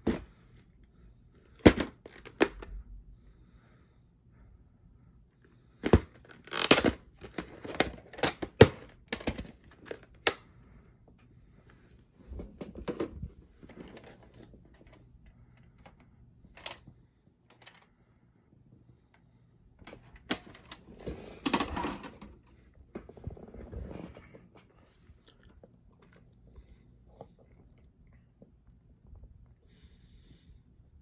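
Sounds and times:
plastic case clicks and knocks: 5.8s - 10.4s
plastic rubbing and scraping: 12.2s - 15.0s, 19.8s - 24.7s.

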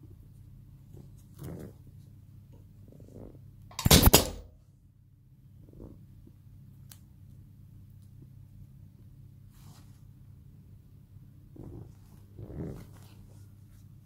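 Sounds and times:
mask rustling: 11.4s - 14.0s.

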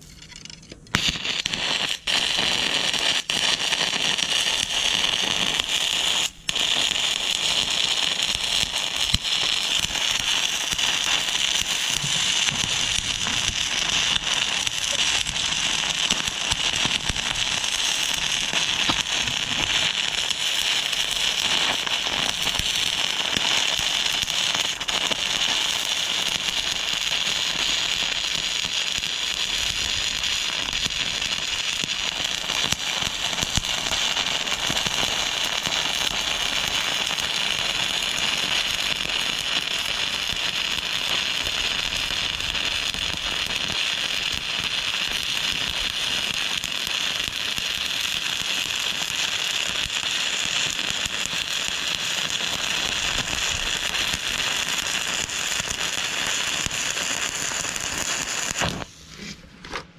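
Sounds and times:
welding arc crackling: 0.0s - 59.0s.

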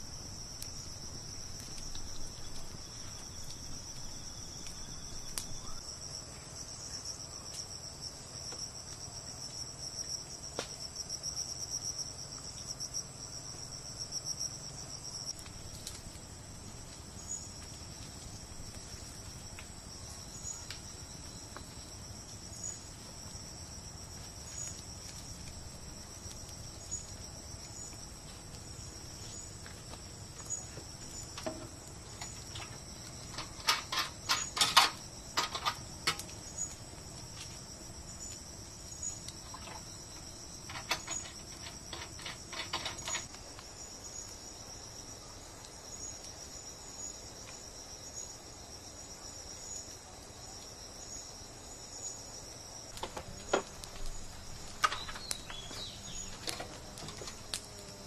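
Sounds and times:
insects trilling chorus: 0.0s - 7.6s, 8.2s - 58.0s
campfire crackling: 0.0s - 58.0s.

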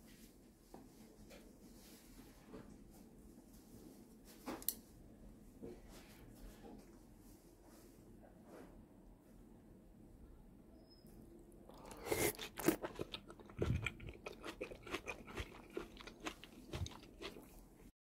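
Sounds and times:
person chewing food: 11.7s - 17.9s.

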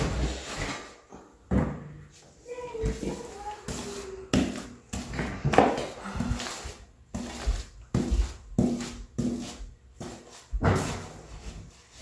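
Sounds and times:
paintbrush scrubbing glue on wood: 6.2s - 12.0s.

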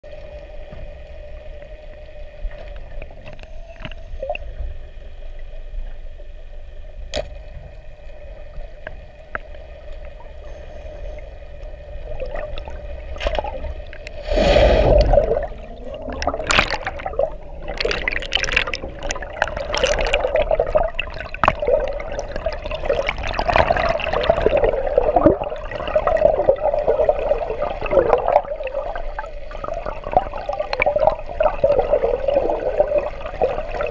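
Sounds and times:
steady underwater hum: 0.0s - 33.9s
crackling rushing water: 7.1s - 33.9s
loud gurgling rush: 14.2s - 28.5s.

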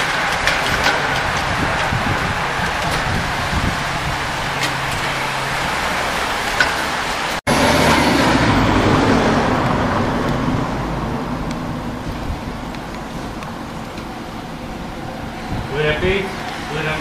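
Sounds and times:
cyclists rushing past: 0.0s - 17.0s
low rumble: 7.5s - 16.6s.

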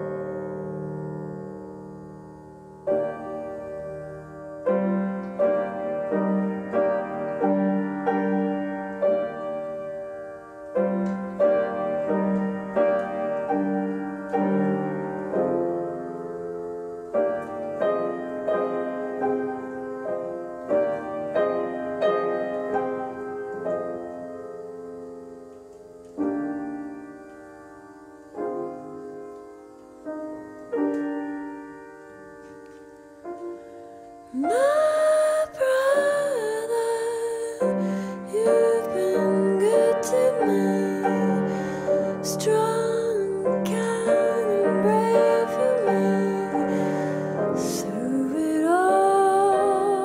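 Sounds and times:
slow piano melody: 0.0s - 50.0s.

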